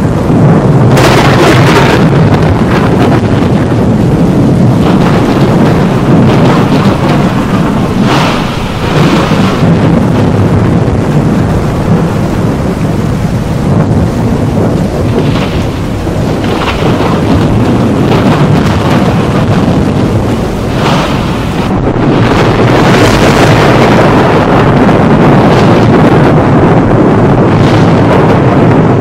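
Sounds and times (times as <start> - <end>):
rain: 0.0 - 29.0
rumbling thunder: 0.0 - 29.0
sharp thunder cracks: 0.0 - 29.0.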